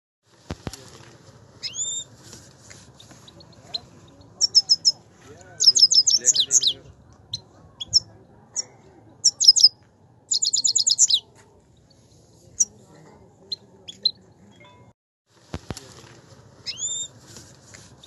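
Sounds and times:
finch singing: 0:01.6 - 0:02.1, 0:03.0 - 0:05.0, 0:05.6 - 0:11.3, 0:16.6 - 0:17.2.

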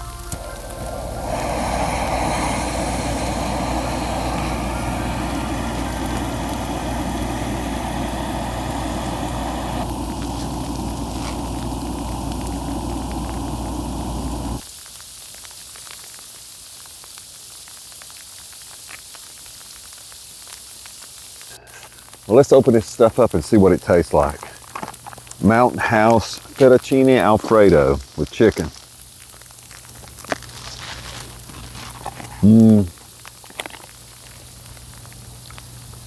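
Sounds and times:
gas stove hissing: 0:00.0 - 0:14.8, 0:18.0 - 0:36.0
foil pouch crinkling: 0:26.1 - 0:36.0.

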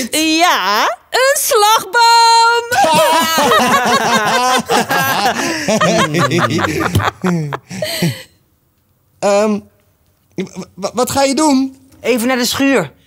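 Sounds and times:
people laughing heartily: 0:02.8 - 0:08.1.

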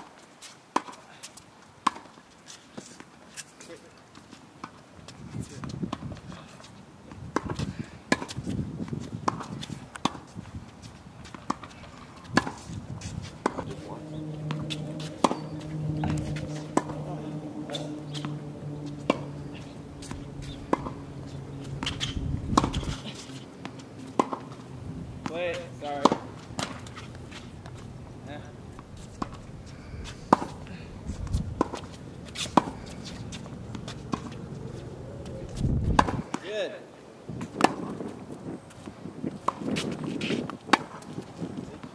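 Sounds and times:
tennis ball struck by racket: 0:01.8 - 0:02.1, 0:07.3 - 0:08.6, 0:09.2 - 0:10.4, 0:11.3 - 0:27.9, 0:30.3 - 0:30.6, 0:31.2 - 0:34.5, 0:35.8 - 0:36.5, 0:37.4 - 0:38.0, 0:39.4 - 0:41.2
tennis ball bouncing on hard court: 0:01.8 - 0:02.2, 0:07.3 - 0:10.4, 0:11.2 - 0:27.9, 0:30.3 - 0:30.6, 0:31.2 - 0:34.5, 0:35.8 - 0:36.5, 0:37.4 - 0:38.0, 0:40.6 - 0:41.3
steady low hum: 0:12.5 - 0:36.3.

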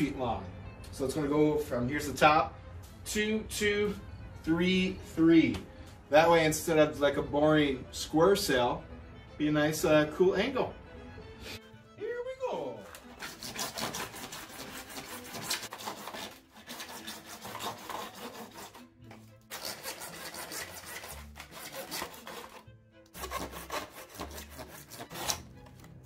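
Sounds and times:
hand saw cutting plastic pipe: 0:12.8 - 0:26.0.

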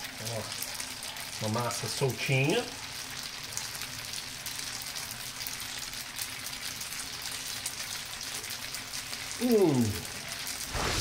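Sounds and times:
pasta sizzling in frying pan: 0:00.0 - 0:11.0
man saying mmm: 0:09.4 - 0:10.2.

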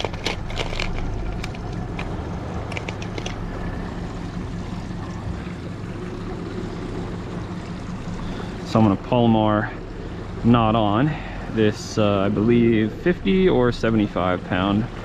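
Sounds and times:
fishing tackle clicks: 0:00.0 - 0:03.5
steady low hum: 0:00.0 - 0:15.0
water noise: 0:00.0 - 0:15.0
wind: 0:00.0 - 0:15.0.

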